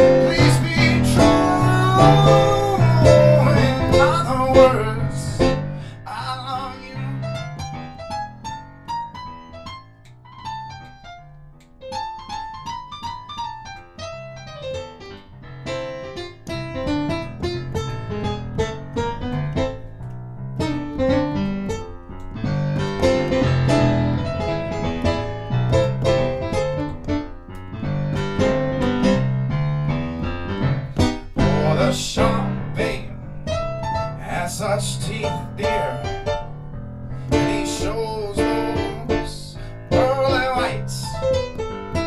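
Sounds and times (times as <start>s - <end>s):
keyboard piano melody over chords: 0.0s - 42.0s.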